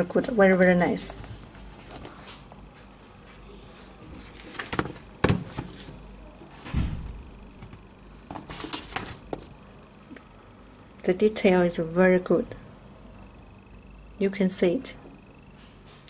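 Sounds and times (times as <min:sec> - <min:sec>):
brushing and rustling: 0:01.2 - 0:06.8, 0:08.3 - 0:09.6
dull thump: 0:06.6 - 0:07.3.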